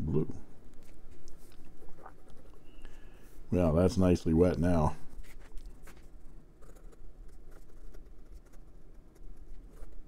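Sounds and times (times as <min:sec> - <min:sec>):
pen scratching on paper: 0:06.6 - 0:10.0.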